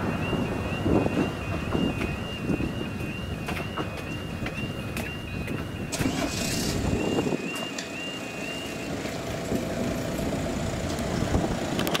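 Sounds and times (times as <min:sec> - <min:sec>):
level crossing alarm: 0:00.0 - 0:09.0.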